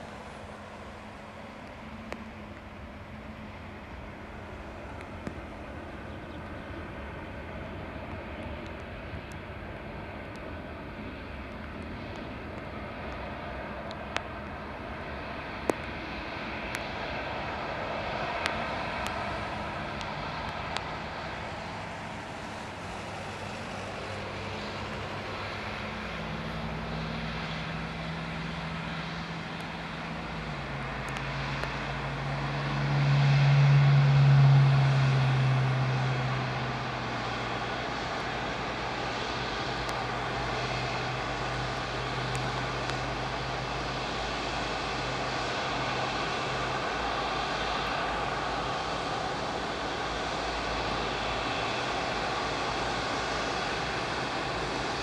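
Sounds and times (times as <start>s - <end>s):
jet engine rumble and whine: 0.0s - 55.0s
low droning tone: 26.2s - 55.0s.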